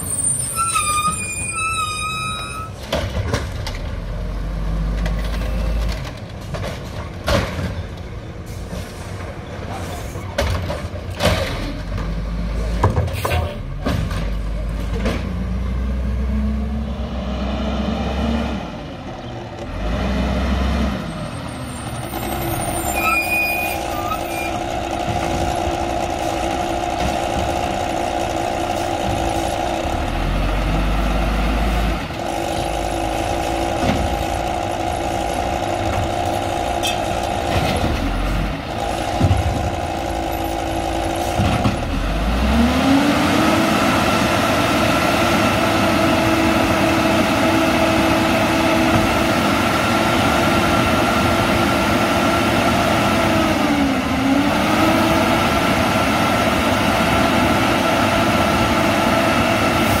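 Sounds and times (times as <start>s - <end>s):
diesel truck engine revving: 14.4s - 22.5s, 24.6s - 60.0s.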